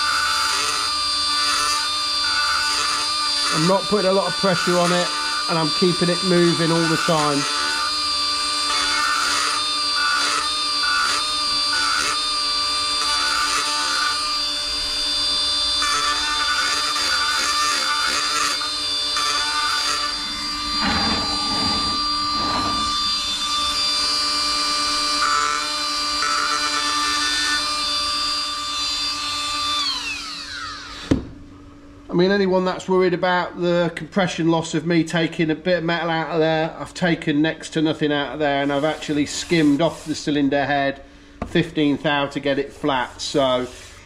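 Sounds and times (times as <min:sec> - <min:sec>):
burr cutting metal: 0:00.0 - 0:27.7
die grinder whine: 0:00.0 - 0:32.0, 0:37.7 - 0:40.4.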